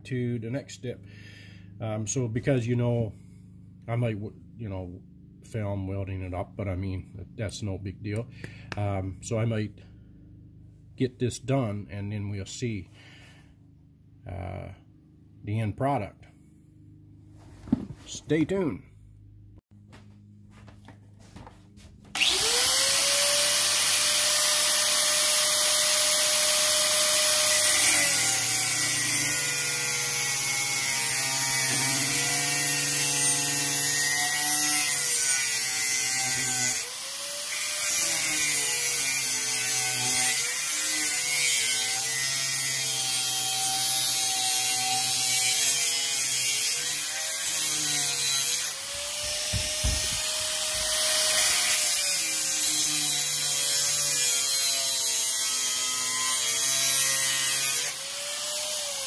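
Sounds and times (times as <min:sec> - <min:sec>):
angle grinder cutting steel pipe: 0:22.2 - 0:59.0.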